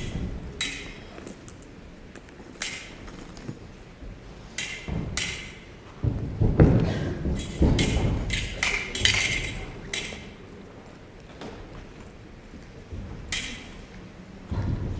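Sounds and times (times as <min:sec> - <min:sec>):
fencing blades clicking: 0:00.6 - 0:03.5, 0:04.6 - 0:05.7, 0:07.4 - 0:10.5, 0:13.3 - 0:14.0.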